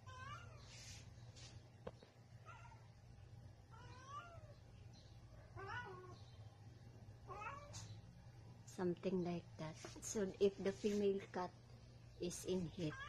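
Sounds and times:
cat yowling: 2.4s - 2.9s, 3.7s - 4.5s, 5.5s - 6.2s, 7.3s - 7.9s.

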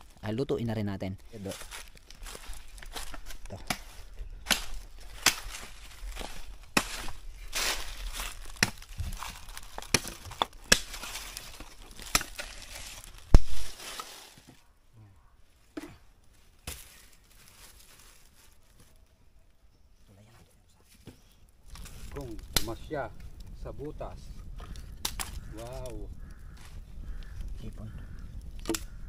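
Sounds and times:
dry leaves crunching and rustling: 1.1s - 14.6s, 16.2s - 19.1s, 21.6s - 23.0s.

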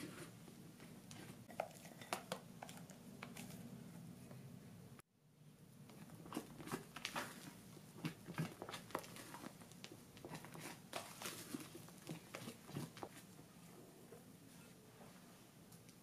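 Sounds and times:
spatula folding wet batter: 5.8s - 13.5s.

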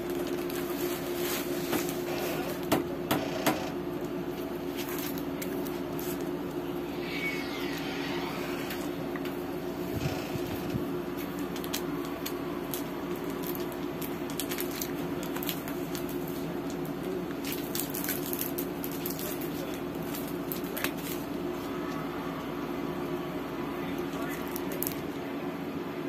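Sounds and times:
plastic packaging crinkling: 0.0s - 2.7s, 4.0s - 7.8s, 10.0s - 21.9s, 23.9s - 25.2s
steady low hum: 0.0s - 26.0s.

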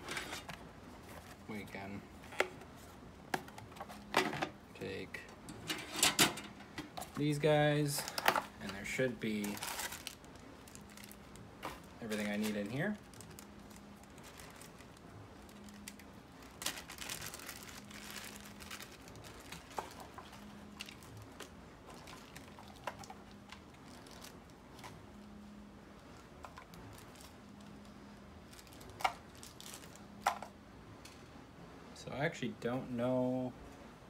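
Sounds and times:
plastic bag crinkling: 7.2s - 25.0s, 26.4s - 30.4s.

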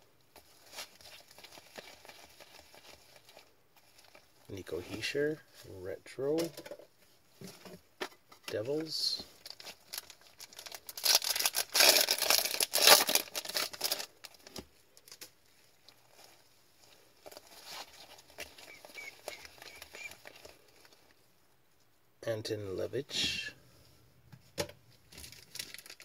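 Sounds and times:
wrapper tearing and crinkling: 0.4s - 4.3s, 9.4s - 21.1s, 25.1s - 26.0s.

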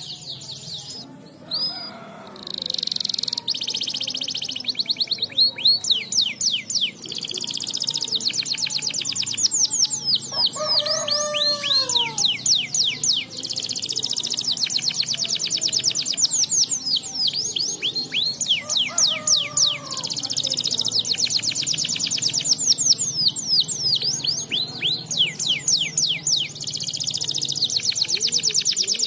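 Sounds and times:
canary singing: 0.0s - 29.0s.

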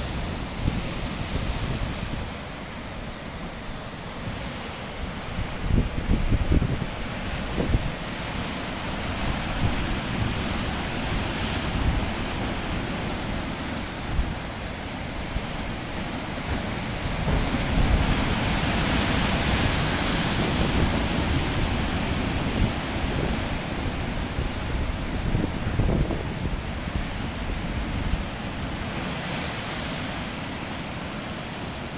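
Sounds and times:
wind rumble on microphone: 0.0s - 31.9s.

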